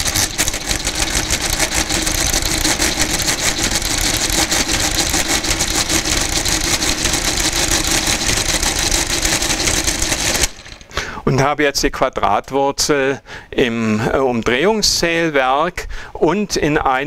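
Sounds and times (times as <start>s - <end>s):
mechanical calculator clattering: 0.0s - 11.0s.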